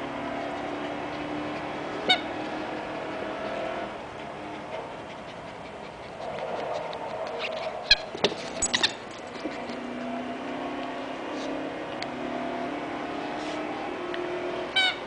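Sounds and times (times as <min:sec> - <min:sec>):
rubber squeaky toy squeaking: 0:02.0 - 0:02.3, 0:07.4 - 0:09.1, 0:14.8 - 0:15.0.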